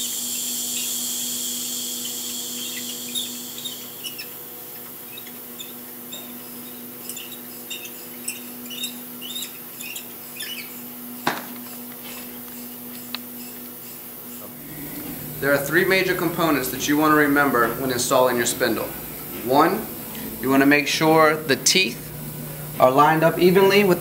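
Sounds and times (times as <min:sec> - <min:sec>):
compressed air hissing: 0:00.0 - 0:04.4, 0:09.7 - 0:24.0.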